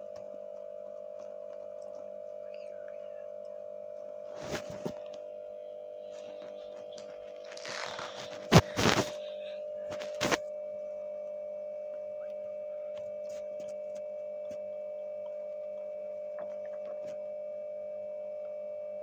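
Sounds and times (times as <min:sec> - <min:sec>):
electrical hum: 0:00.0 - 0:19.0
book page turning: 0:04.3 - 0:05.2, 0:06.0 - 0:09.3, 0:09.9 - 0:10.4.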